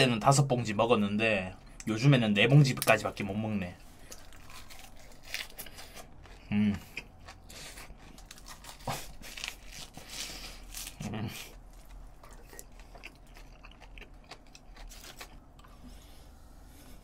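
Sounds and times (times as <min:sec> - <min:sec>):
chewing with wet smacking: 0:04.0 - 0:09.6, 0:11.5 - 0:15.9.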